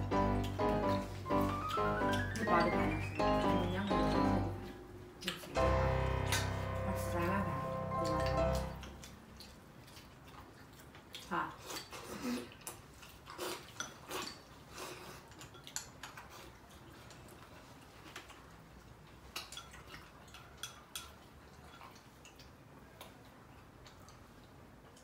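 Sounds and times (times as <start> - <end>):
chopsticks and bowls clinking: 15.3 - 16.5.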